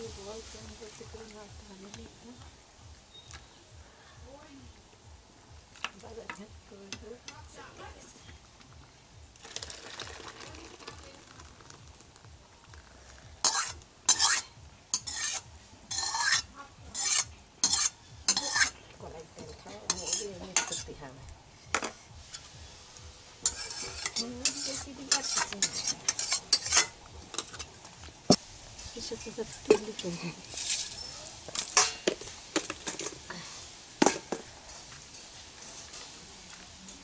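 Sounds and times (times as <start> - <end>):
metal spatula scraping metal pan: 13.4 - 18.8, 19.4 - 21.0, 23.4 - 27.7, 29.4 - 33.2.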